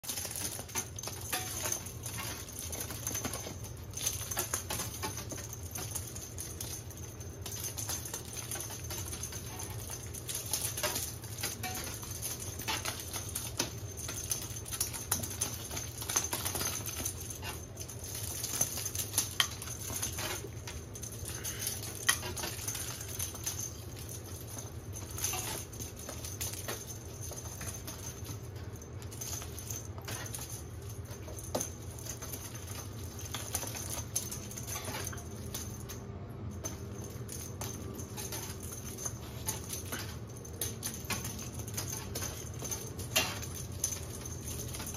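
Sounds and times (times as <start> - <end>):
kittens' paws on hard floor: 0.0 - 44.9.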